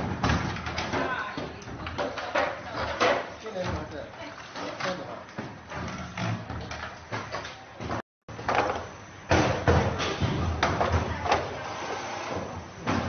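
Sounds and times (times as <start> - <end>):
plastic boxes knocking and clattering: 0.0 - 4.0
workshop room noise: 0.0 - 13.0.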